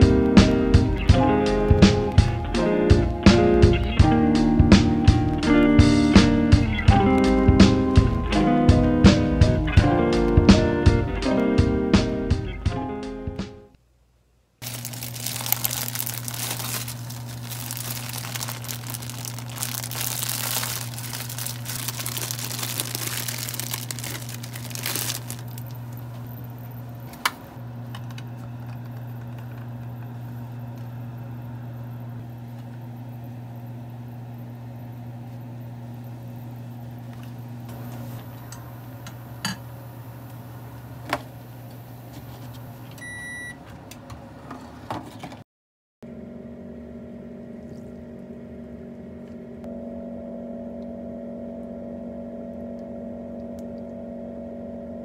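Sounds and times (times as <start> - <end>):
kitchen appliance humming: 14.6 - 43.5
short electronic beep: 43.0 - 43.6.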